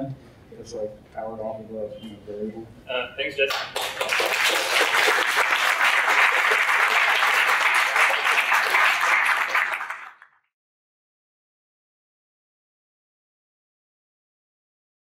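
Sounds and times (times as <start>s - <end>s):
audience applauding: 3.5s - 10.4s.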